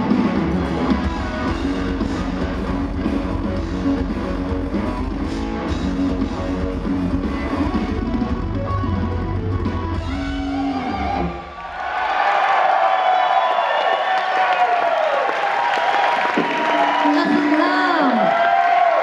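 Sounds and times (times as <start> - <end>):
live rock band playing: 0.0 - 11.5
crowd cheering: 10.0 - 19.0.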